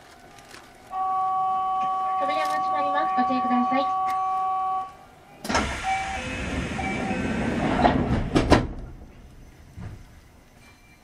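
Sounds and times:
train doors hissing sliding: 5.4s - 10.2s
doors knocking to rest: 7.8s - 8.9s.

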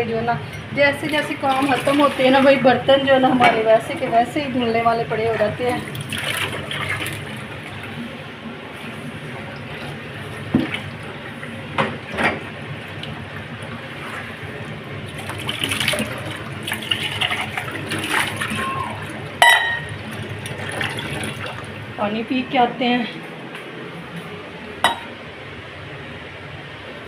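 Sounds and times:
tap water running into sink: 15.1s - 21.7s
metal dishes knocking: 19.4s - 19.9s.

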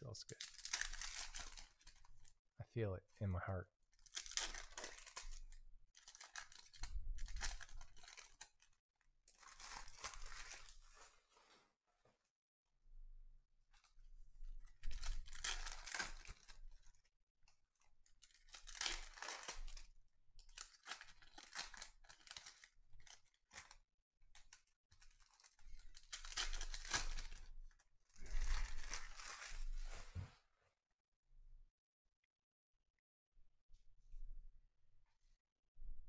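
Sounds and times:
foil wrapper tearing and crinkling: 0.3s - 2.2s, 4.0s - 8.7s, 9.3s - 11.0s, 14.8s - 17.0s, 18.2s - 27.5s, 28.2s - 29.9s.

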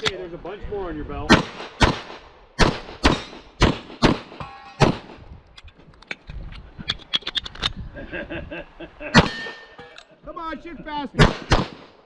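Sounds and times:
pistol shots: 1.3s - 5.2s, 9.2s - 9.6s, 11.2s - 12.0s.

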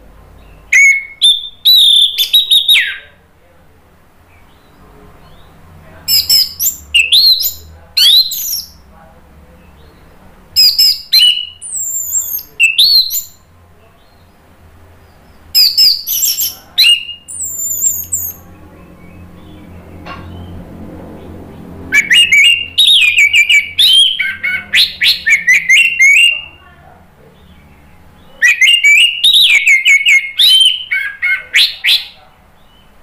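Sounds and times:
thrush singing: 15.6s - 26.6s.

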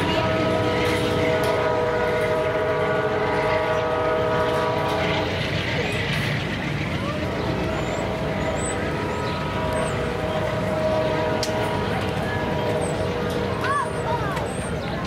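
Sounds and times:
train air horn chord: 0.0s - 5.4s, 8.0s - 13.6s
train rumbling: 0.0s - 15.0s.

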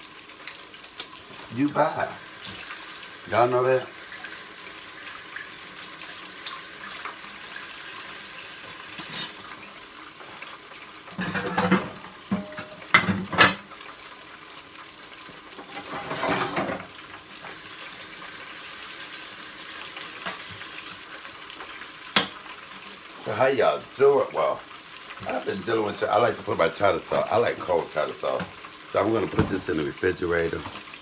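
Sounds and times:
dishes and utensils clinking: 9.0s - 9.4s, 11.1s - 13.7s, 15.6s - 16.9s.

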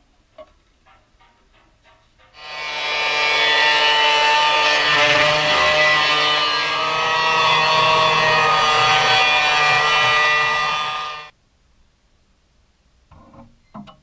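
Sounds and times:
angle grinder cutting sheet steel: 2.4s - 11.3s.

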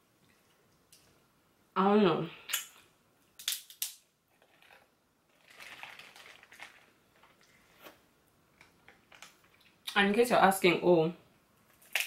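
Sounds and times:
crab shell cracking: 3.4s - 4.0s, 11.7s - 12.0s
soft eating sounds: 4.3s - 10.0s.

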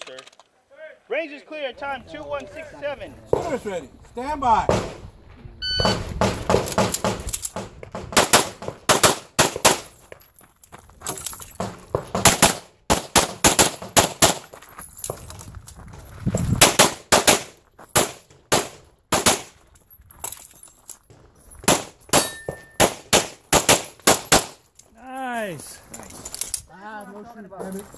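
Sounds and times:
shot timer beep: 5.6s - 6.0s
pistol shots: 8.1s - 9.9s, 12.1s - 14.4s, 16.6s - 19.6s, 21.6s - 24.6s.

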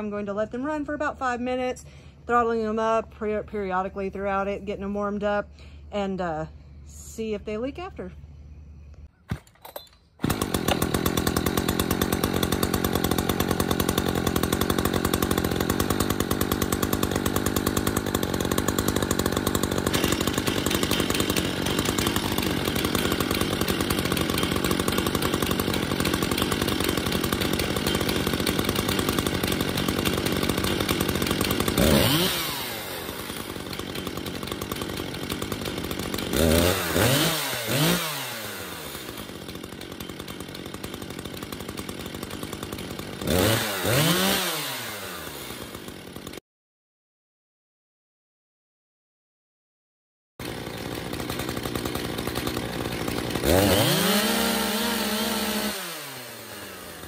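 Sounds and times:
chainsaws idling and revving: 10.2s - 46.4s, 50.4s - 57.0s.

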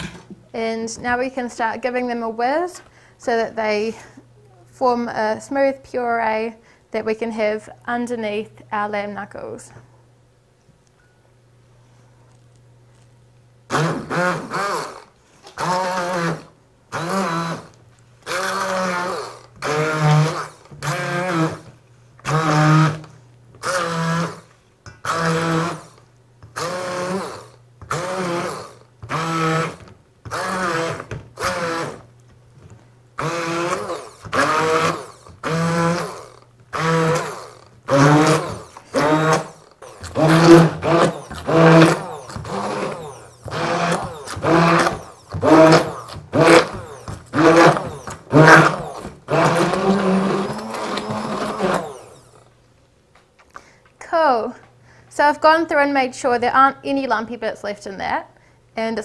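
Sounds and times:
stick blender pureeing: 13.7s - 32.3s, 33.2s - 52.5s.

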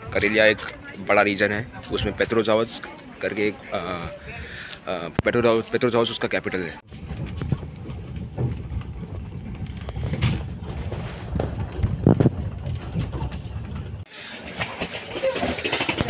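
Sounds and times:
busy background noise: 0.0s - 6.9s
train wheels rumbling on rails: 7.0s - 16.0s.

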